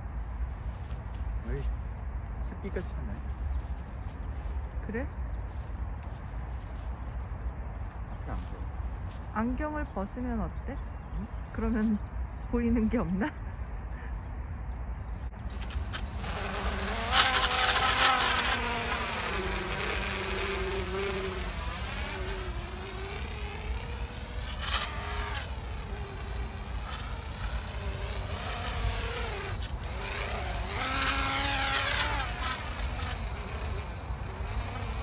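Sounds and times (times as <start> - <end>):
drone propellers whining: 15.5 - 35.0.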